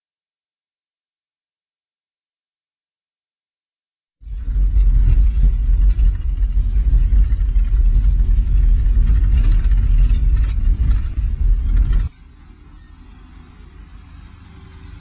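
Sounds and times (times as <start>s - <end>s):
engine and tyres rumbling: 4.2s - 15.0s
rattles and knocks from bumps: 4.3s - 12.2s.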